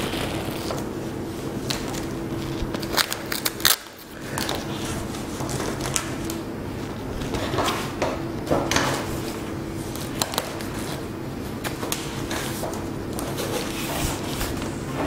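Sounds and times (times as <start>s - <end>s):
steady low hum: 0.0s - 15.0s
fabric rustling and scraping: 12.2s - 15.0s.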